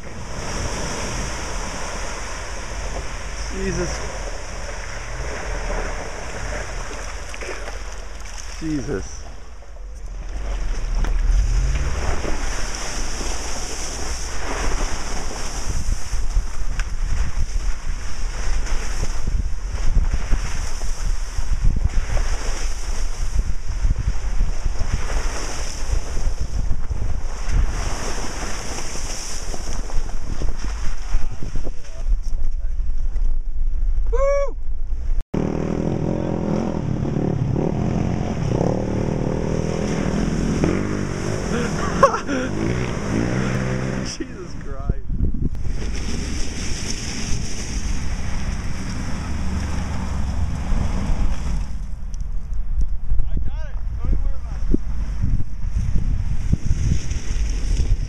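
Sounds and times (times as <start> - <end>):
low engine rumble: 0.0 - 15.1, 47.3 - 55.0
water rushing and splashing: 0.0 - 16.6, 37.8 - 44.8, 45.6 - 51.9
wind buffeting microphone: 0.0 - 35.6, 36.2 - 58.0.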